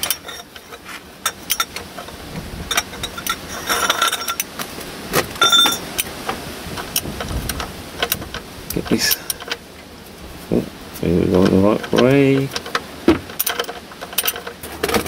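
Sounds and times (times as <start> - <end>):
ringing metal clinks: 2.7 - 4.5, 5.4 - 5.9.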